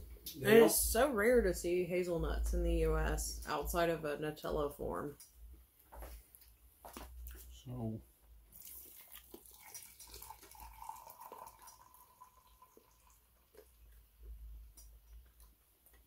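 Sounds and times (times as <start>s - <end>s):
liquid swishing: 8.5s - 12.0s.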